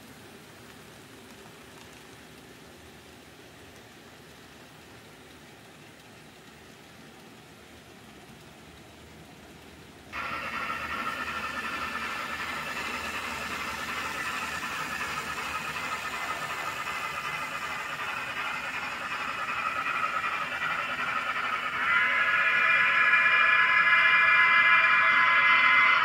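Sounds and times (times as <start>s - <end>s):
model train motors whirring: 10.2s - 26.0s.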